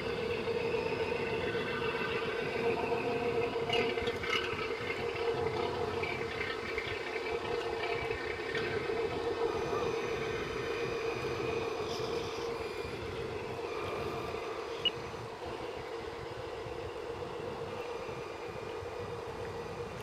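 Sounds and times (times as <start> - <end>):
model boat engine hum: 0.0 - 20.0.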